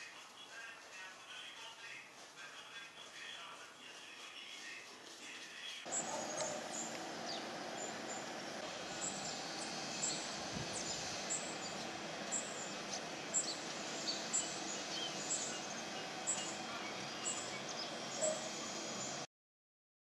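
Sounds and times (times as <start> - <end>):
steady background hiss: 0.0 - 19.3
birds chirping: 5.7 - 19.3.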